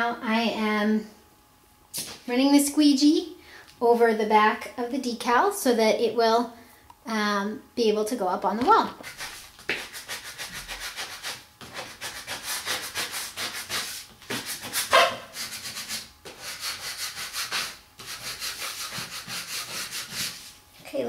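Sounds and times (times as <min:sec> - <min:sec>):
squeegee scratching on vinyl: 0:08.9 - 0:20.5.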